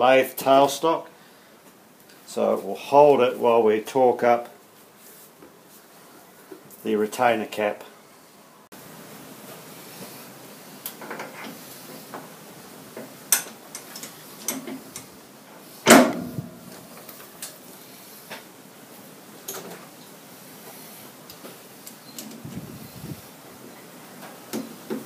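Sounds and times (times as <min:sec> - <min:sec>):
metal clicks and clunks: 0:13.3 - 0:15.1.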